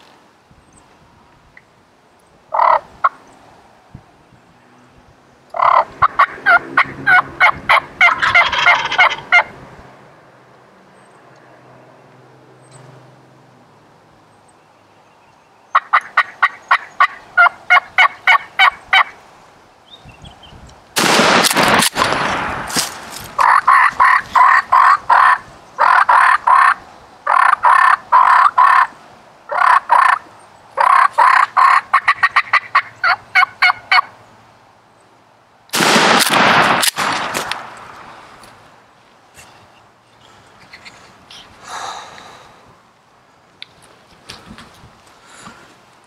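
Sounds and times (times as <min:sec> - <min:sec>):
turkeys gobbling: 0:02.5 - 0:03.2, 0:05.6 - 0:09.5, 0:15.7 - 0:19.2, 0:23.4 - 0:28.9, 0:29.5 - 0:30.2, 0:30.8 - 0:34.1
shotgun shot: 0:21.0 - 0:23.0, 0:35.8 - 0:37.8.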